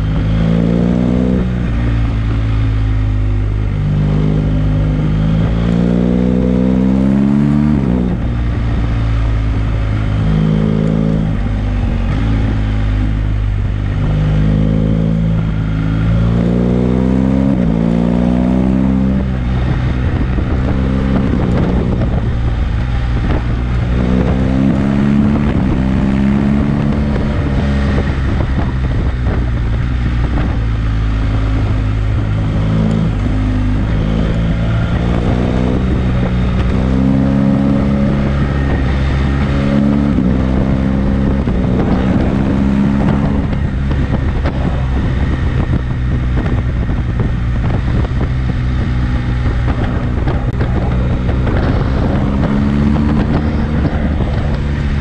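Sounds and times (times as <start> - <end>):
motorcycle engine revving: 0.0 - 55.0
wind rushing over microphone: 0.0 - 55.0.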